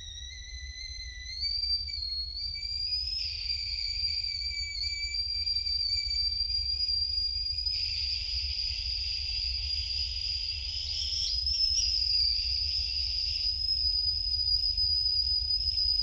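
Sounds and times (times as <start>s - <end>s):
high-pitched whine with hiss: 0.0s - 16.0s.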